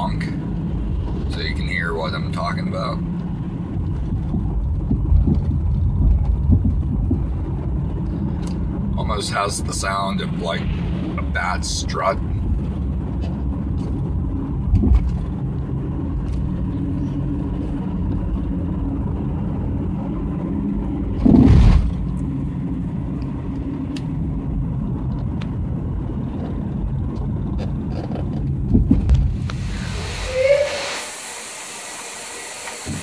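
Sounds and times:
low road rumble: 0.0 - 33.0
suspension thuds: 3.1 - 8.9, 12.2 - 23.0, 23.8 - 29.6.

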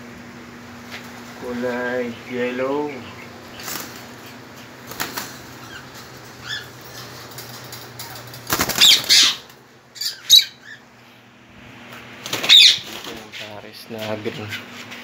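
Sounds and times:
parrots flapping wings: 3.4 - 9.6, 11.9 - 13.4.

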